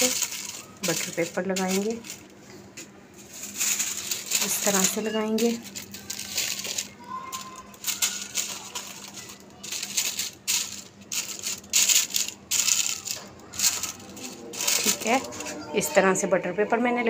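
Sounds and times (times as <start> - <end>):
paper crinkling and rustling: 0.0 - 2.6, 3.2 - 15.7.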